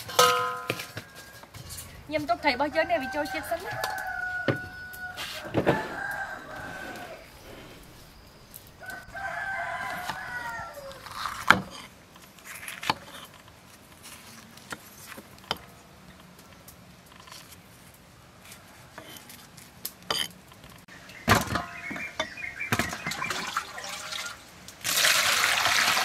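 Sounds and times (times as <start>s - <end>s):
rooster crowing: 2.4s - 11.2s.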